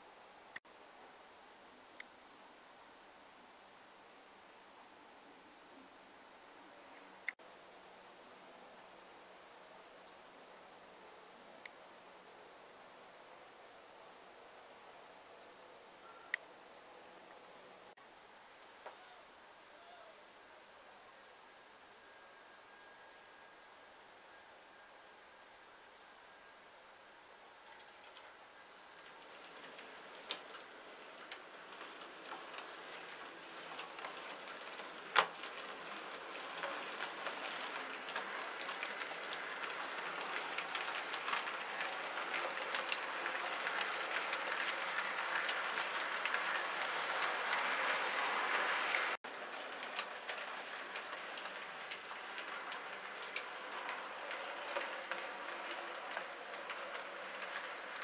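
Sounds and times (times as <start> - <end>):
model train wheels clicking on track: 27.6 - 58.0.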